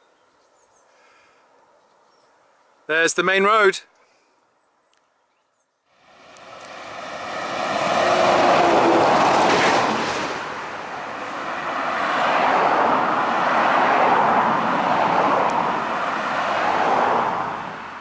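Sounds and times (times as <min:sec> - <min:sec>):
road traffic passing: 0:05.9 - 0:18.0.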